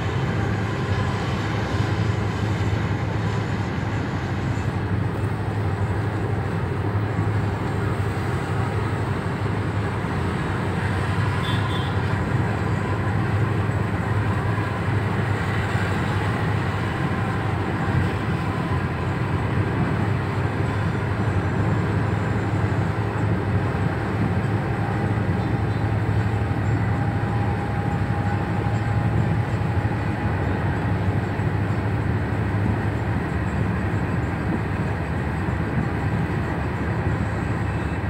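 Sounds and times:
vehicle rumble and hiss: 0.0s - 38.0s.

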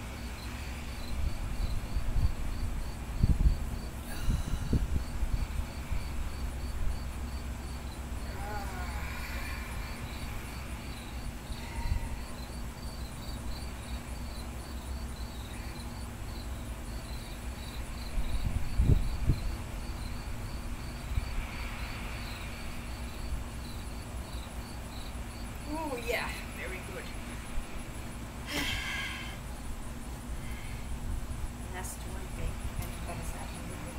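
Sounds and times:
insect chirping: 0.0s - 33.9s
low outdoor rumble: 0.0s - 33.9s.

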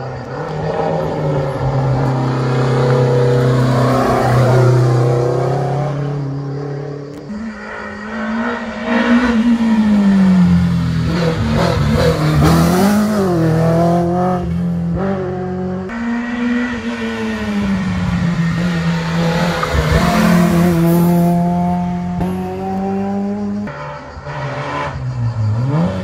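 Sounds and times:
rally car engine accelerating: 0.0s - 26.0s
car engine revving high: 8.2s - 26.0s.

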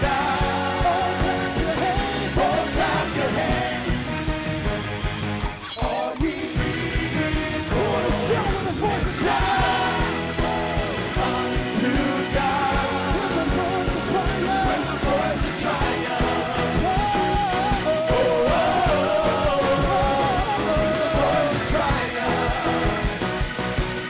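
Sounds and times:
electric guitar: 0.0s - 24.0s
live band playing gospel-rock: 0.0s - 24.0s
person singing: 7.1s - 23.1s.

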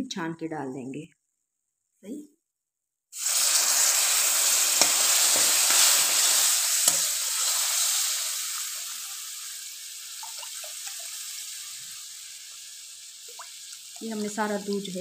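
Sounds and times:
liquid sizzling in hot pan: 3.1s - 15.0s.

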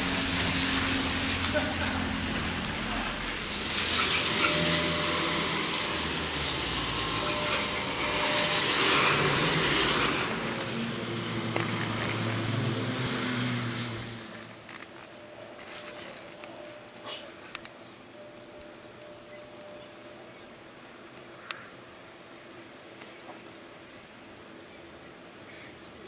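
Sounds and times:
traffic hiss on wet street: 0.0s - 17.6s.

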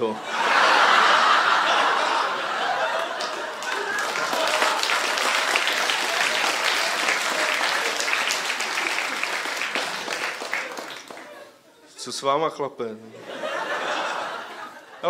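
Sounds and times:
audience laughing: 0.0s - 12.0s, 13.1s - 15.0s
audience applauding: 0.8s - 11.6s.

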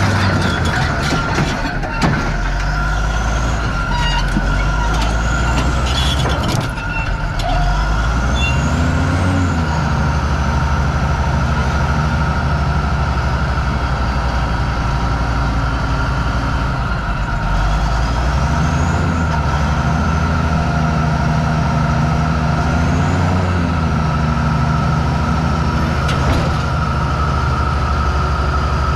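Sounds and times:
bulldozer diesel engine running: 0.0s - 28.9s.

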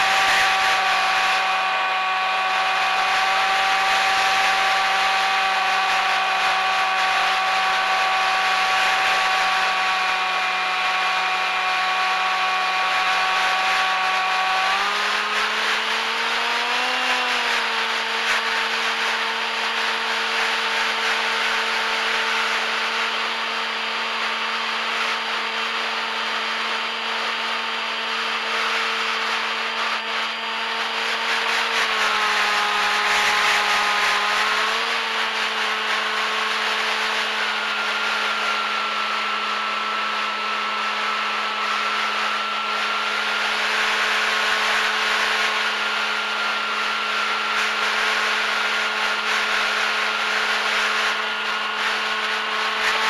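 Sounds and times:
electric motor and propeller whining: 0.0s - 53.0s.

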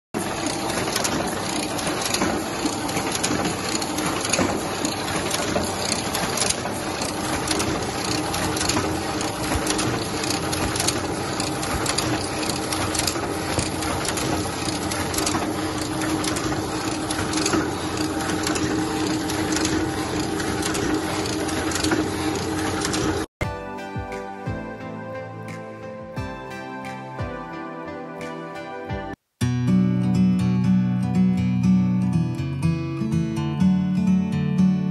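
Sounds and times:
printing press clattering: 0.2s - 23.3s
printing press hum: 0.2s - 23.3s.

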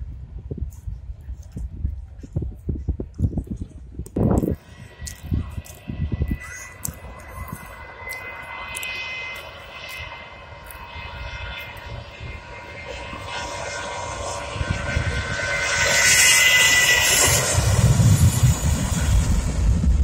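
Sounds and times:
jet engines whining: 4.0s - 20.0s.

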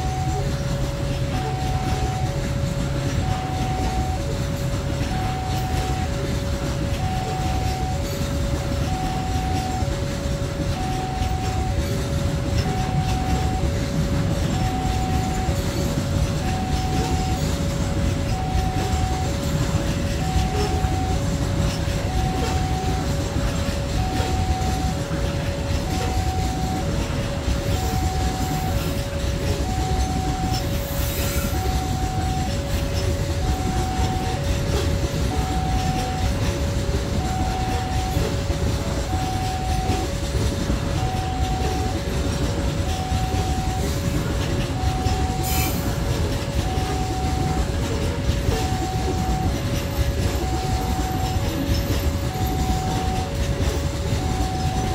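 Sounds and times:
level crossing two-tone alarm: 0.0s - 54.9s
train wheels rumbling on rails: 0.0s - 54.9s.

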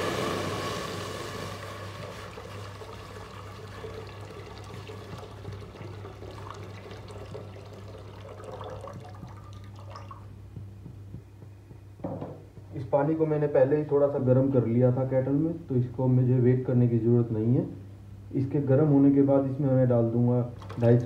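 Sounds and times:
water pouring into metal pot: 0.0s - 10.2s.

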